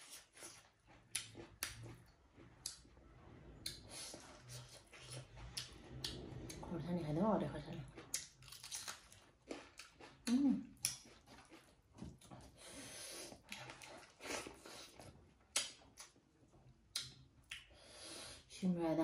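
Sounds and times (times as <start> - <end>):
wet chewing and lip smacks: 0.0 - 2.9, 7.9 - 12.4, 13.4 - 16.2, 16.8 - 17.8.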